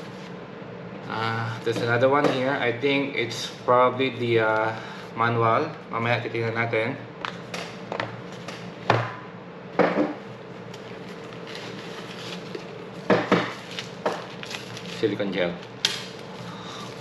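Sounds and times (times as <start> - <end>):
packaging being handled: 10.6 - 17.0.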